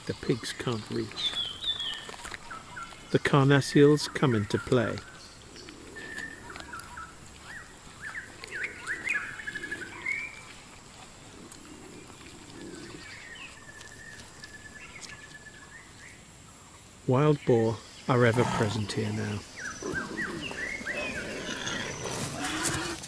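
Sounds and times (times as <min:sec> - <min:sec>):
forest birds chirping and whistling: 0:00.0 - 0:10.7, 0:11.3 - 0:23.0
animal gnawing on a carcass: 0:00.6 - 0:03.1, 0:04.6 - 0:15.4.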